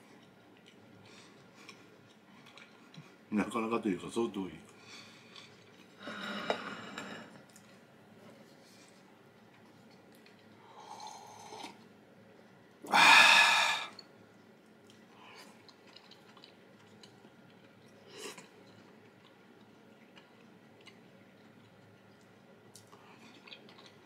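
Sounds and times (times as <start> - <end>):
person chewing: 0.1 - 3.2, 14.8 - 24.0
loud breathy sound: 12.9 - 14.0.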